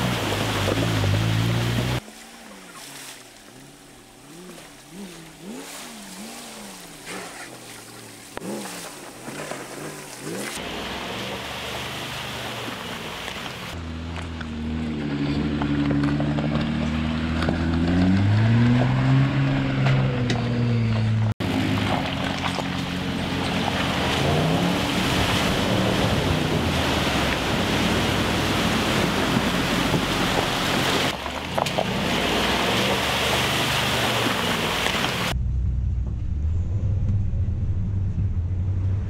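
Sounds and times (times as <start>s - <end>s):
water rushing and splashing: 0.0s - 13.8s, 21.4s - 35.4s
suv engines running: 0.0s - 39.0s.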